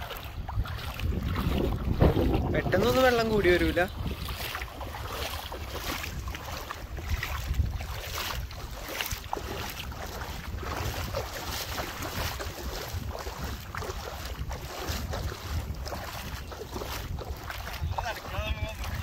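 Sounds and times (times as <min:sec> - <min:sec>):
feet wading through water: 0:00.0 - 0:19.0
wind buffeting microphone: 0:00.0 - 0:19.0.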